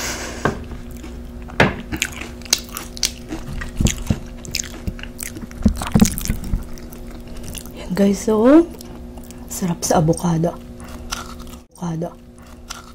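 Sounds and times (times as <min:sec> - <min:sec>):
moist chewing: 0:00.6 - 0:08.0, 0:08.6 - 0:11.7, 0:12.3 - 0:12.9
crunching chips: 0:01.8 - 0:07.8, 0:10.8 - 0:11.7, 0:12.4 - 0:12.9.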